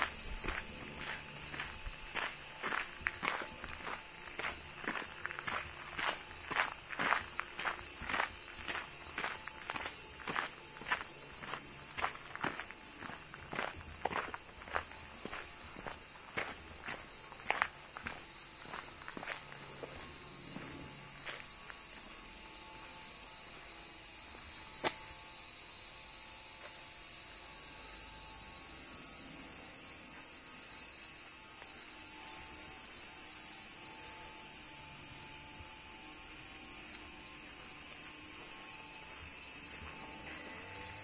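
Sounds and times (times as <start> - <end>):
cicadas chorus: 0.0 - 41.0.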